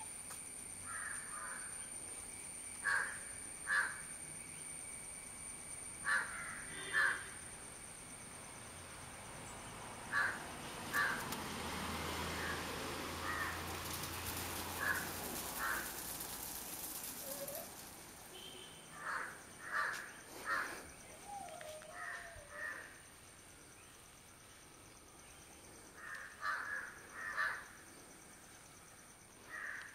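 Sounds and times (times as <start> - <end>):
steady hiss: 0.0 - 21.2
crows cawing: 0.9 - 1.6, 2.8 - 4.0, 6.1 - 7.3, 10.1 - 11.2, 13.2 - 13.6, 14.8 - 16.0, 18.9 - 20.8, 21.9 - 22.9, 26.0 - 27.7, 29.5 - 29.9.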